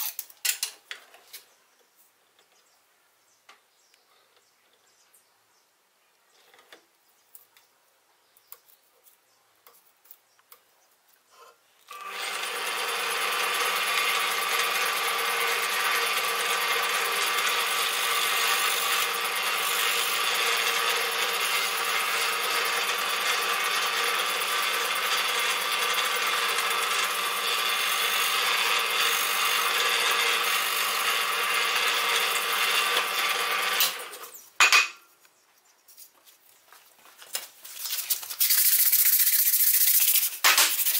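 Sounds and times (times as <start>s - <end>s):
drill press motor hum: 11.9s - 34.3s
drill bit cutting wood: 11.9s - 34.4s.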